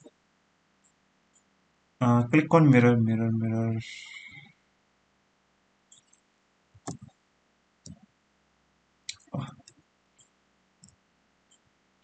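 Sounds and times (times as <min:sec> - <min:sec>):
computer mouse clicking: 0:05.9 - 0:06.2, 0:06.8 - 0:07.1.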